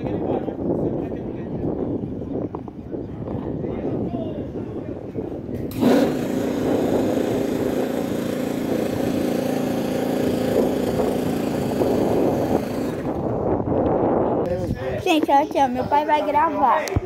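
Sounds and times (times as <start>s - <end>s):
electric starter cranking engine: 5.7s - 13.4s.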